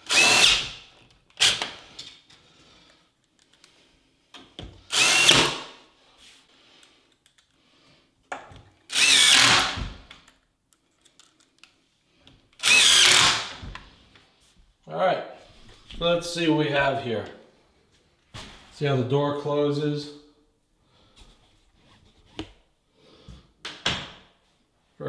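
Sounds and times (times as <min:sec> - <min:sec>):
cordless drill driving screws: 0:00.0 - 0:01.8, 0:04.9 - 0:05.7, 0:08.9 - 0:10.0, 0:12.6 - 0:13.7.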